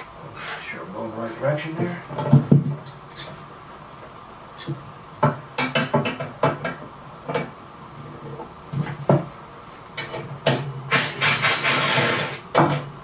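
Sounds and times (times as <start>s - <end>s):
tools knocking on metal frame: 1.8s - 3.0s, 4.6s - 7.6s.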